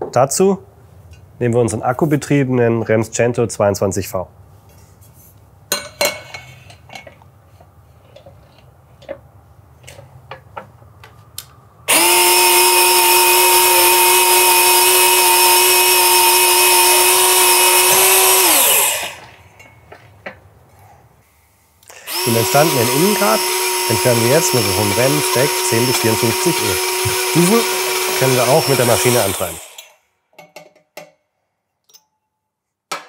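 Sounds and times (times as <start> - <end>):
pipe cutter motor whining: 11.9 - 19.4, 21.9 - 29.9
pipe knocking into cutter: 23.8 - 29.6.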